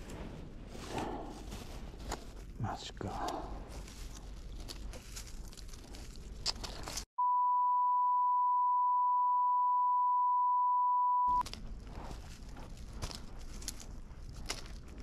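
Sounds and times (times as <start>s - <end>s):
dry leaves crunching: 3.7s - 7.0s, 11.4s - 15.0s
plastic bag rustling: 3.7s - 7.1s
censor bleep: 7.2s - 11.4s.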